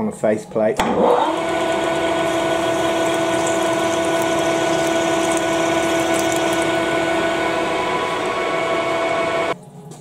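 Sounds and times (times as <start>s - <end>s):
lathe machine hum: 0.9s - 9.6s.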